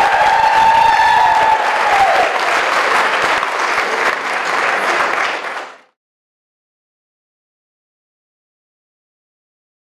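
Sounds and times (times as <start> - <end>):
audience applauding: 0.0 - 6.0.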